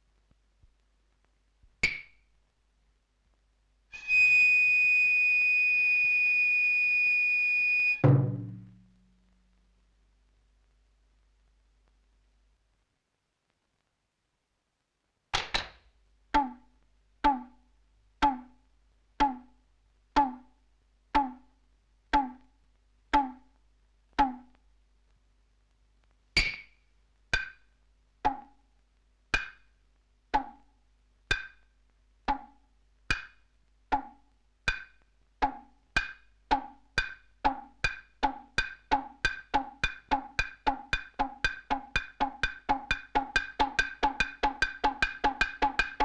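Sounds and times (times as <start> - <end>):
higher-pitched percussion knock: 8.0 - 8.9
low dry percussion knocks: 8.0 - 8.9.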